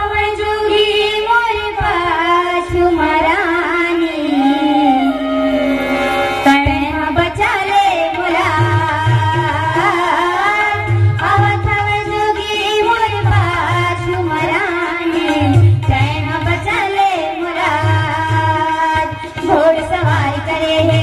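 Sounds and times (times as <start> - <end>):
hand drum: 4.2 - 21.0
person singing slow melody: 4.3 - 6.0.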